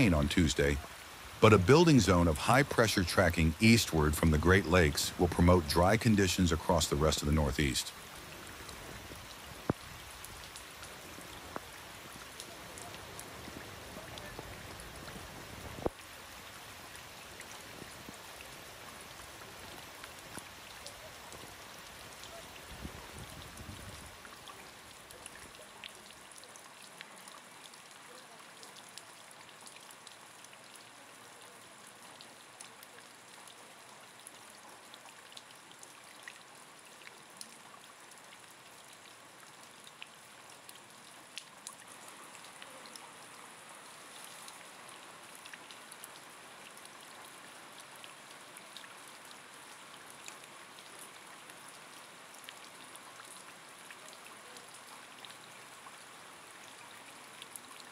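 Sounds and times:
heavy rain hiss: 0.0 - 25.6
raindrops ticking on a surface: 0.0 - 57.9.

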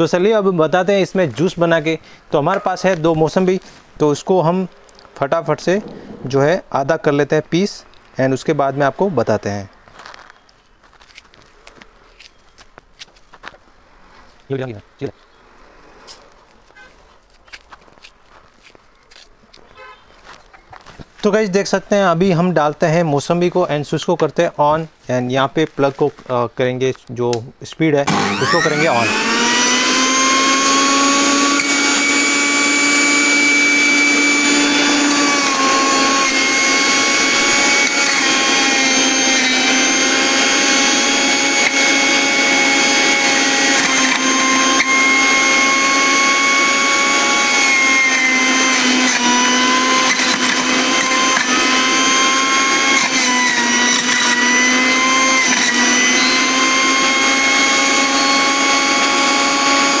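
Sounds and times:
juicer motor whine: 28.1 - 60.0.

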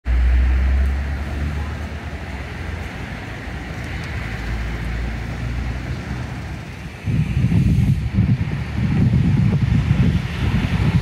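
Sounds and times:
passing cars rumble and hiss: 0.0 - 11.0.

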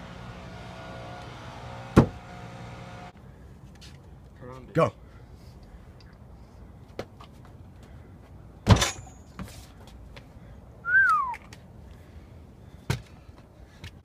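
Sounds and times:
hard landing thud on wood: 2.0 - 2.2
falling whistle-like tone: 10.8 - 11.4.

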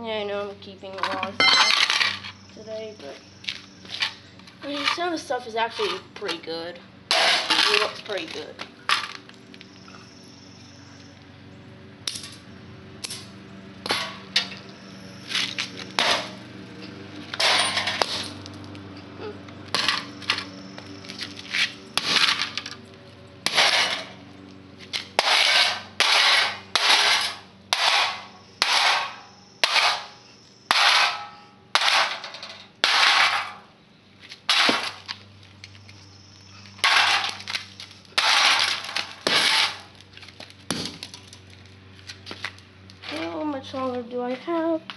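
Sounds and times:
sledgehammer banging sheet metal: 7.1 - 7.9, 13.8 - 14.6, 16.0 - 16.4, 17.4 - 18.3, 23.5 - 24.2, 25.2 - 33.6, 34.5 - 35.0, 36.8 - 37.4, 38.2 - 39.9.

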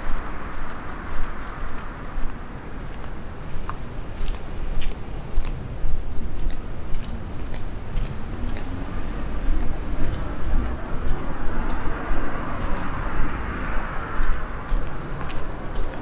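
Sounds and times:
faint footstep clicks: 0.0 - 16.0
low street rumble: 0.0 - 16.0
traffic hiss: 0.0 - 16.0
small bird chirping: 6.7 - 10.2.

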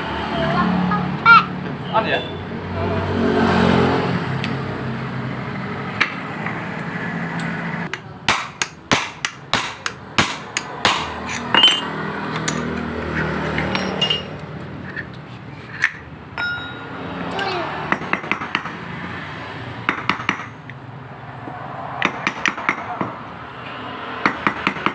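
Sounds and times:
hammer striking metal: 4.4 - 4.7, 7.9 - 12.7, 16.4 - 16.9.

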